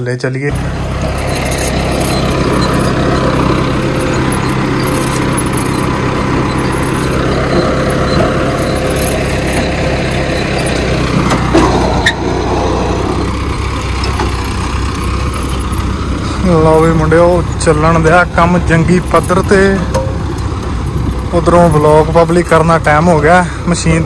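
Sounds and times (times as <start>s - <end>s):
tractor diesel engine running: 0.5s - 24.0s
short clunks: 1.2s - 16.4s, 19.0s - 21.3s.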